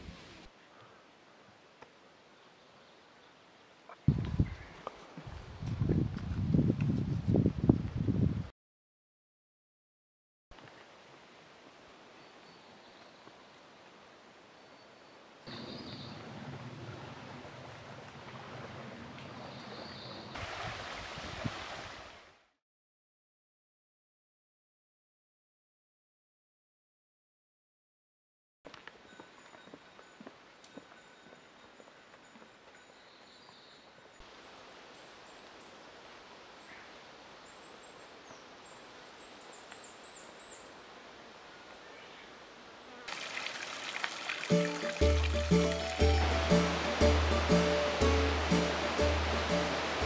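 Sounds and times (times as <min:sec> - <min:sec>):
running water: 0:20.4 - 0:22.3, 0:43.1 - 0:50.0
outdoor ambient rush: 0:43.1 - 0:50.0.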